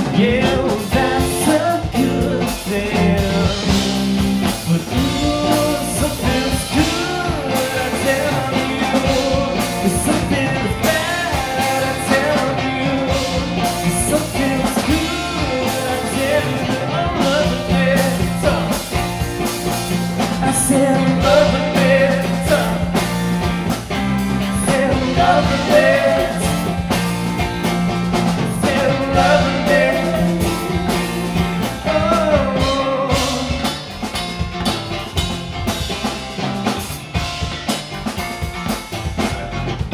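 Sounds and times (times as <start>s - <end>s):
bass guitar: 0.0s - 39.9s
drum kit: 0.0s - 39.9s
electric guitars: 0.0s - 39.9s.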